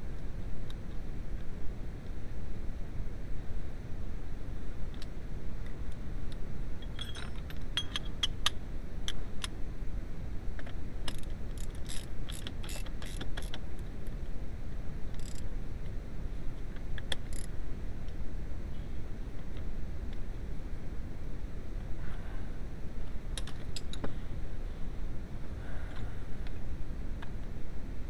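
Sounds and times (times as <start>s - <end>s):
socket ratchet clicking: 11.0s - 13.6s, 15.2s - 15.4s.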